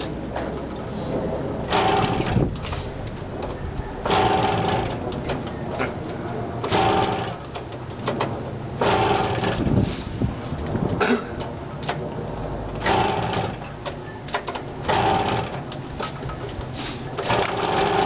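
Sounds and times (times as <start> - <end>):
two-stroke moped engine running: 1.7 - 2.7, 4.0 - 5.1, 6.6 - 7.6, 8.8 - 9.7, 12.8 - 13.8, 14.8 - 15.8, 17.2 - 18.0.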